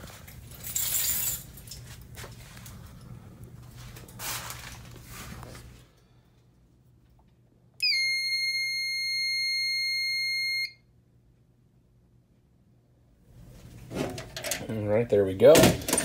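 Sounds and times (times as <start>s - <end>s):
high-pitched alarm panel beep: 7.8s - 10.8s.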